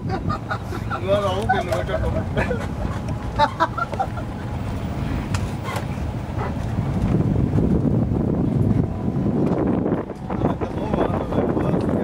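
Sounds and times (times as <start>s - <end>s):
tram running rumble: 0.0s - 12.0s
wind buffeting microphone: 0.0s - 12.0s.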